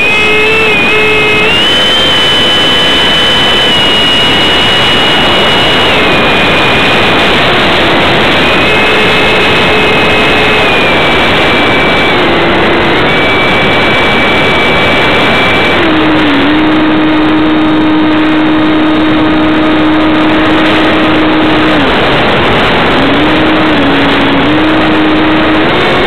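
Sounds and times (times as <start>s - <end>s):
ducted fan roaring: 0.0s - 26.0s
high whine changing pitch: 0.0s - 26.0s.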